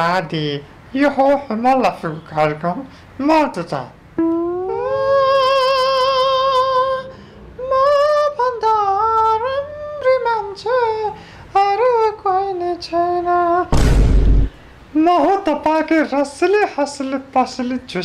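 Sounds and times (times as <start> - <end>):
high unaccompanied singing voice: 4.2 - 13.7.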